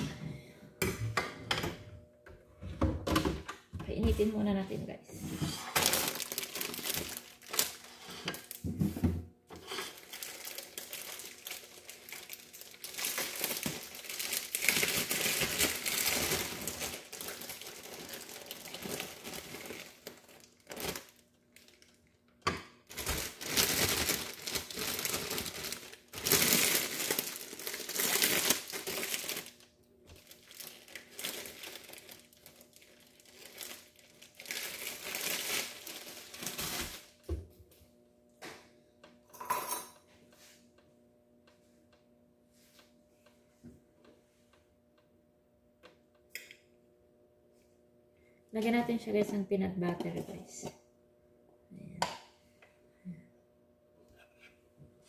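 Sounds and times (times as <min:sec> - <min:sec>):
plastic bag crinkling: 0:05.5 - 0:08.6, 0:09.5 - 0:22.1, 0:22.8 - 0:37.2.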